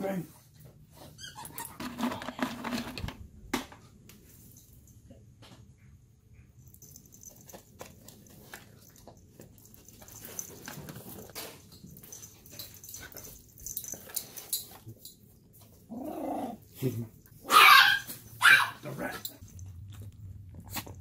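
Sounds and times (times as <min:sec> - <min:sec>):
dog whining: 0:01.0 - 0:01.8
dog chewing a treat: 0:19.3 - 0:21.0.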